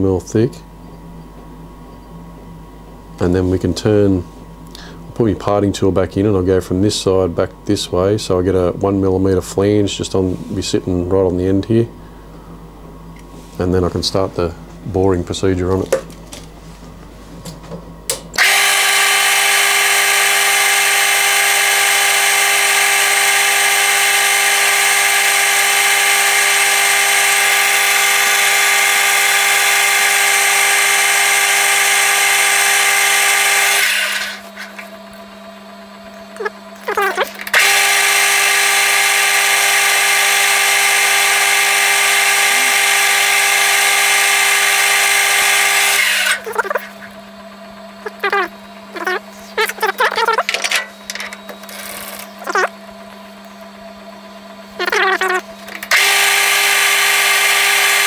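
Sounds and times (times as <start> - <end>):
metal lathe cutting: 18.4 - 34.4, 36.4 - 47.1, 54.8 - 58.0.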